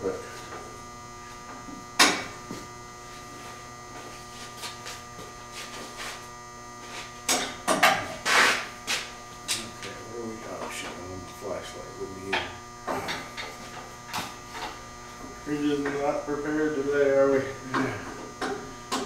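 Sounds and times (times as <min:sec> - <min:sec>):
electrical hum: 0:00.0 - 0:19.0
tool scraping: 0:02.4 - 0:11.5.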